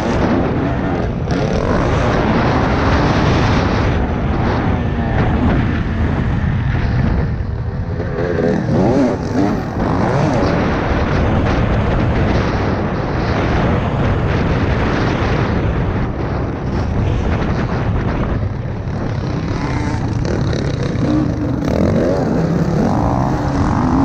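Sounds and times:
dirt bike engine revving: 0.0 - 15.8, 16.6 - 24.0
wind noise on microphone: 0.0 - 24.0.

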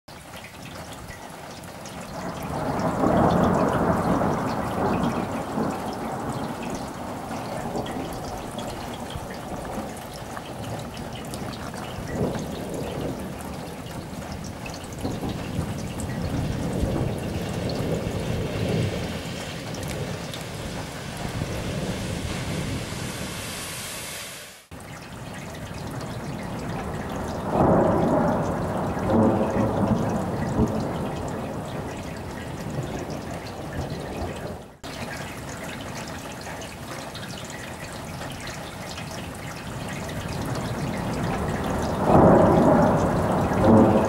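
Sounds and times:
water drips and taps: 0.1 - 21.5, 24.7 - 44.0
steady rain: 0.1 - 44.0
thunder rumbling: 2.1 - 23.7, 25.7 - 34.8, 40.0 - 44.0.

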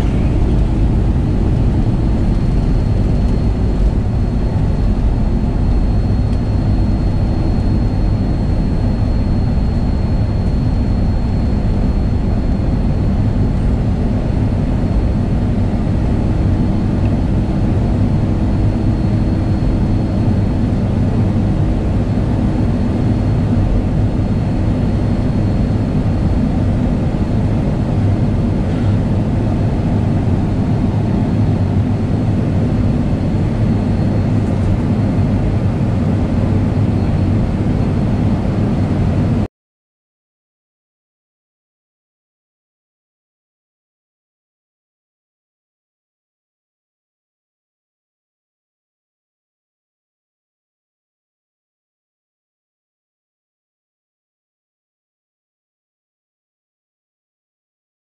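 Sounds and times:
faint high whine: 0.0 - 39.5
jet engines idling in cabin: 0.0 - 39.5.

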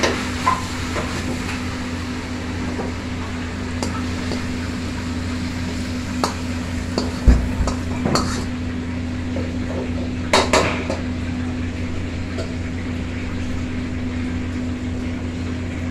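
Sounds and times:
metal ladle scraping wok: 3.5 - 8.5.

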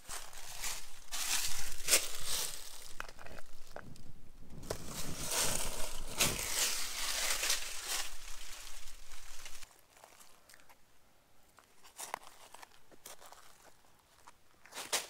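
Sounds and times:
dry leaves crunching: 0.0 - 10.4.

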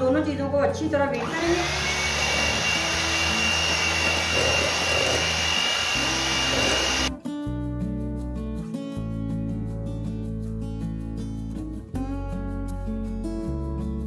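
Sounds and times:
electric hand mixer whining: 1.2 - 7.1.

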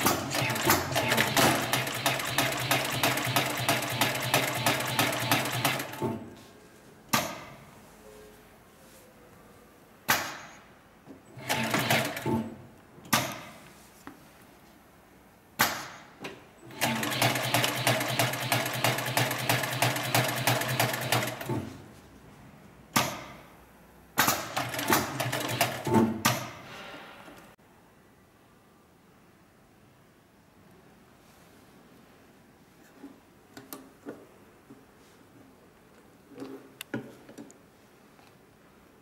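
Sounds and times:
sewing machine rapid knocking: 0.0 - 6.0, 11.4 - 12.4, 16.7 - 21.5, 24.2 - 25.9.

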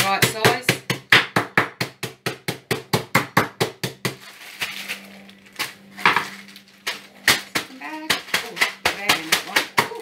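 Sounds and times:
crisps crunching in plastic bag: 4.1 - 10.0
plastic bag rustling: 4.1 - 10.0.

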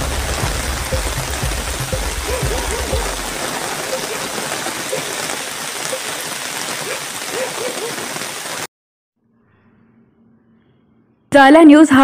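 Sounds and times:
rain falling on water: 0.0 - 8.7.

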